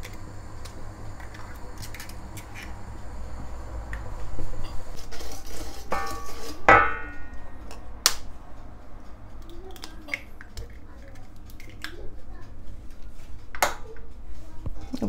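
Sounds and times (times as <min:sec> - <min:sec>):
wire whisk scraping metal bowl: 0:04.6 - 0:07.4
metal bowl struck ringing: 0:05.9 - 0:07.8.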